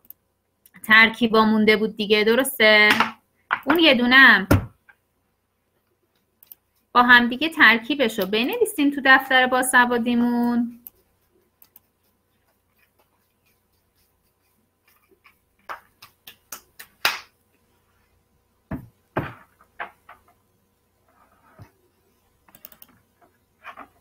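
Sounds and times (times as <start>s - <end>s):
computer mouse clicks: 11.6s - 11.9s, 22.5s - 23.0s.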